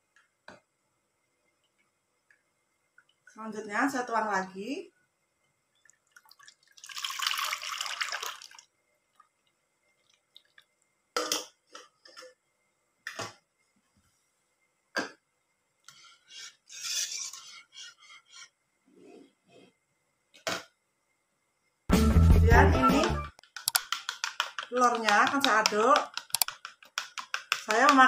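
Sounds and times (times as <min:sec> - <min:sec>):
liquid pouring into saucepan: 0:05.8 - 0:09.3.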